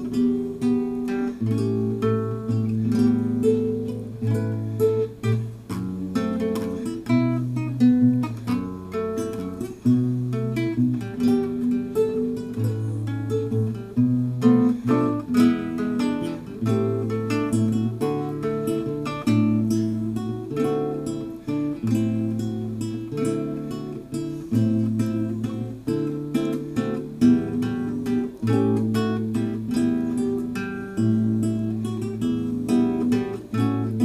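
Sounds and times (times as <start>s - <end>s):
plucked string waltz: 0.0s - 34.0s.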